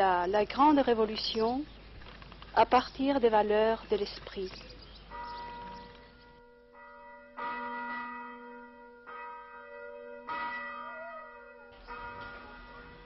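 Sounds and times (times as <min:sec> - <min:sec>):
large bell tolling: 0:05.1 - 0:13.0.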